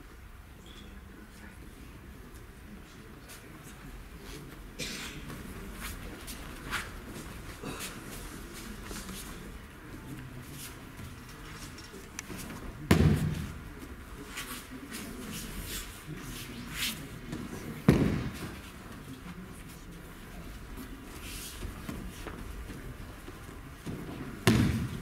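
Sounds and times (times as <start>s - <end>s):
heavy thuds on mats: 17.8s - 18.6s, 24.4s - 25.0s.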